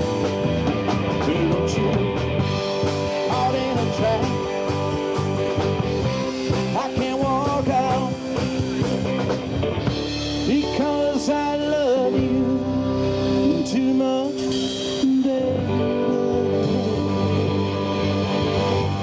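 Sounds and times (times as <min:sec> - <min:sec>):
drum kit: 0:00.0 - 0:19.0
electric guitars: 0:00.0 - 0:19.0
man singing into a microphone: 0:01.1 - 0:02.3, 0:03.1 - 0:04.6, 0:06.6 - 0:08.3, 0:10.4 - 0:17.6.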